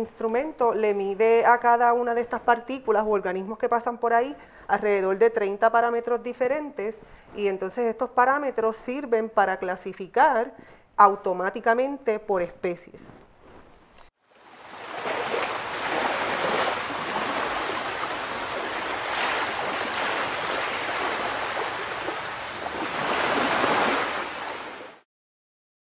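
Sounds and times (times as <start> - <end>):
ocean waves washing: 14.3 - 25.0.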